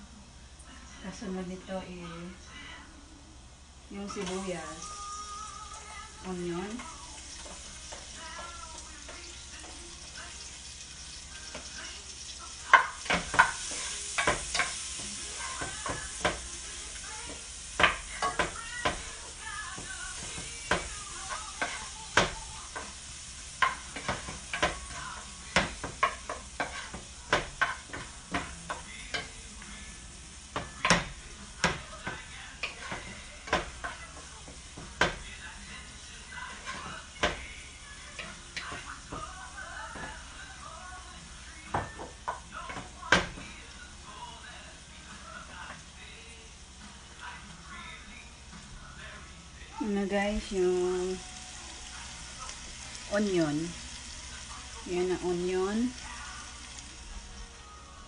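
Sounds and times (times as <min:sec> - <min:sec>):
garlic and onion sizzling in pan: 0:03.5 - 0:58.0
spoon clinking and scraping pan: 0:12.7 - 0:16.4.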